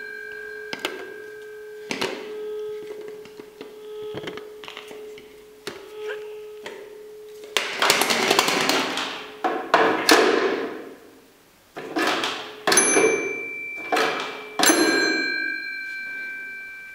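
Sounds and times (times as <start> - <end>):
metallic bell ring: 0.0 - 2.6, 12.7 - 16.9.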